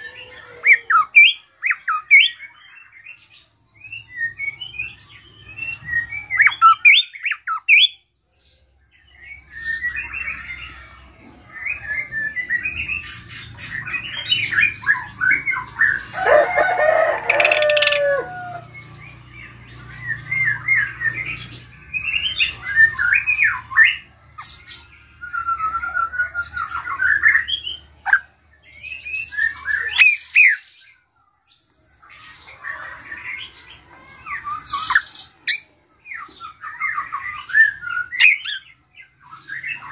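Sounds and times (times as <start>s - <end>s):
bird singing: 0.0s - 39.9s.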